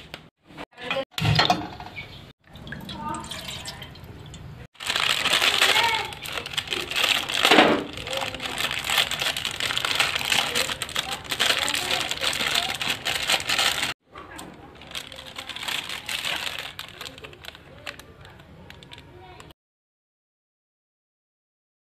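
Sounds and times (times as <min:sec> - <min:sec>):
plastic packet crinkling: 0:04.8 - 0:19.5.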